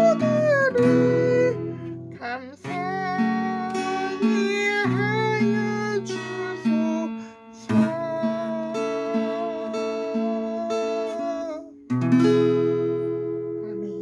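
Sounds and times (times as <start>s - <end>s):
person singing a hymn: 0.0s - 11.8s
acoustic guitar strumming: 0.0s - 14.0s.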